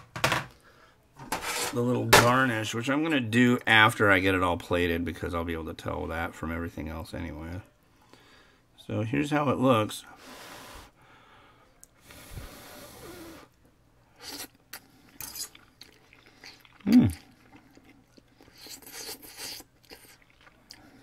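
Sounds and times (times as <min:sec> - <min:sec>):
person slurping noodles: 0:14.2 - 0:21.0.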